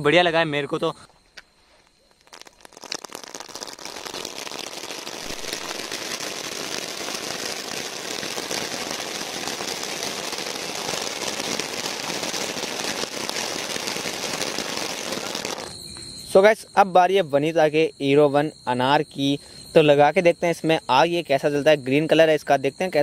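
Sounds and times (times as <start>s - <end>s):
fine crackling: 1.4s - 15.7s
firework spraying sparks: 1.4s - 15.8s.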